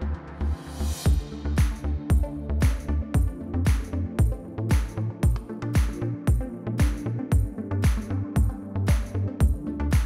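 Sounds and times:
electronic music with bass line: 0.0 - 10.0.

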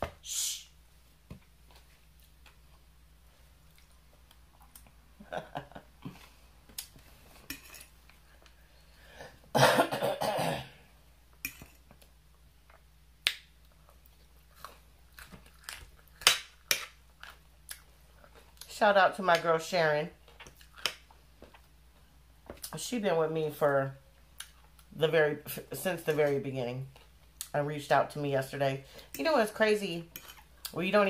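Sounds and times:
chewing salad: 3.6 - 5.0, 13.6 - 18.8, 20.2 - 22.0, 24.3 - 24.9, 26.8 - 27.6, 30.1 - 30.8.

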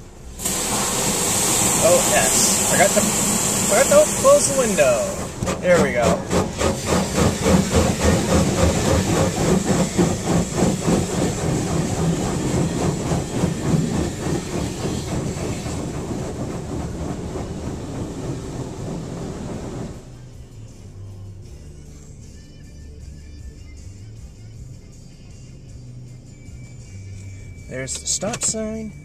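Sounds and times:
car wash machinery clatter: 0.0 - 20.4, 27.8 - 29.0
hiss of spray: 0.4 - 5.4, 6.2 - 13.6.

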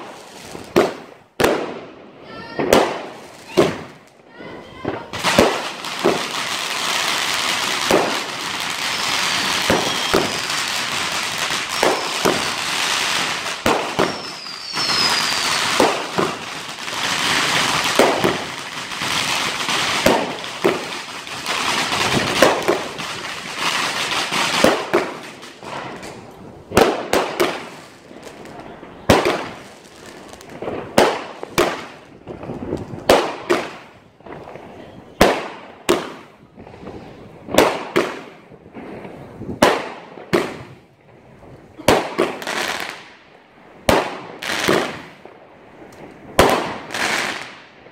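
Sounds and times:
fireworks bangs and crackling: 0.0 - 47.9
falling firework whistles: 7.9 - 16.4.

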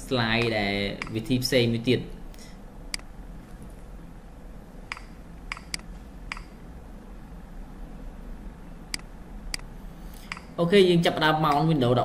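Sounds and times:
low room hum: 0.0 - 12.0
computer mouse clicks: 4.9 - 6.6, 8.9 - 10.5.

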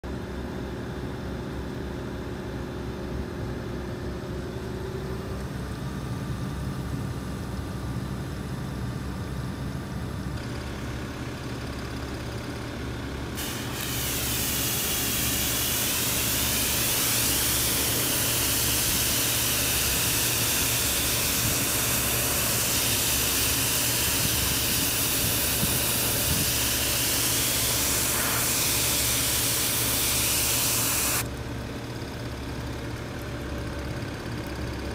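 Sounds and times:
pressure washer spraying metal: 13.4 - 31.3.

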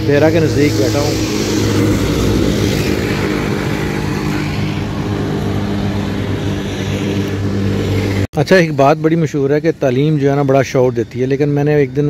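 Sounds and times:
vehicle engine running: 0.0 - 8.7
vehicles passing on road: 0.0 - 12.0.

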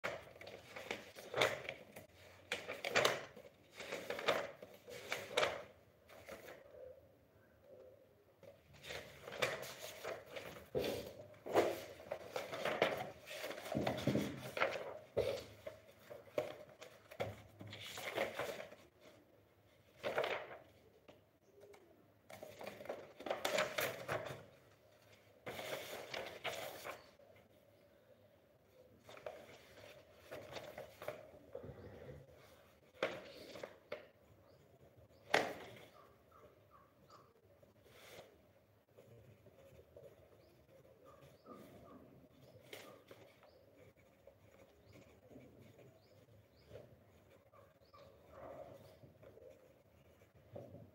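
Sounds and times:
paper sheets shuffling: 0.0 - 6.6, 8.6 - 21.2, 22.3 - 27.2, 29.0 - 31.4, 32.4 - 34.4, 37.7 - 47.6.

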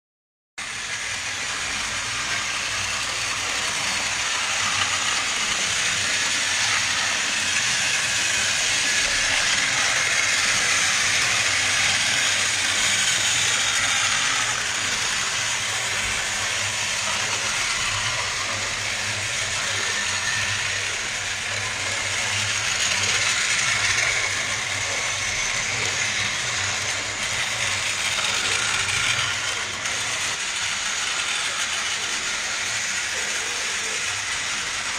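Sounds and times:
toy train motors whirring: 0.6 - 34.9.

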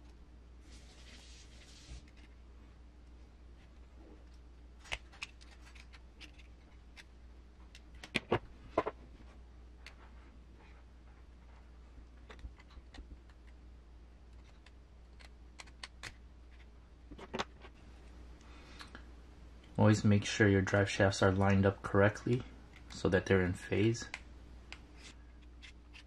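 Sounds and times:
faint low hum: 0.0 - 26.0
small parts clicking: 14.3 - 16.7.

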